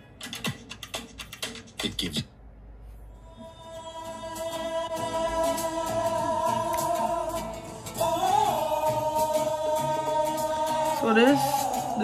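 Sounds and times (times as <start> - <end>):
gospel song: 3.2 - 12.0
person singing long notes: 3.2 - 12.0.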